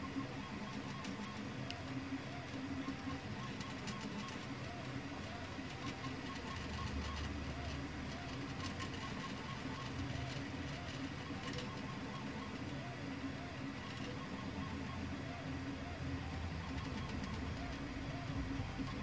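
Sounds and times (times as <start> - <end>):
steady printer hum: 0.0 - 19.0.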